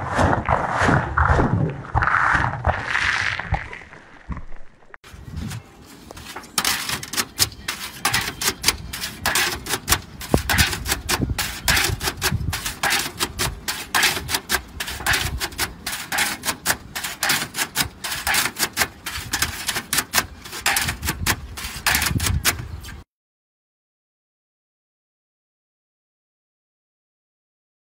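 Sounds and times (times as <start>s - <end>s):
metal roof shingles clattering: 6.2s - 22.8s.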